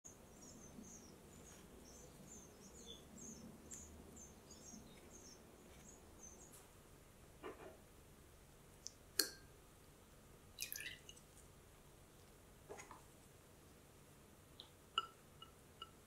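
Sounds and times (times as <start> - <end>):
small bird chirping: 0.1 - 6.6.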